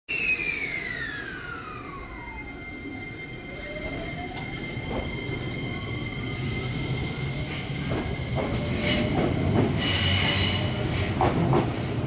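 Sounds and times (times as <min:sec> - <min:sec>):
electric train motor whine: 0:00.2 - 0:08.8.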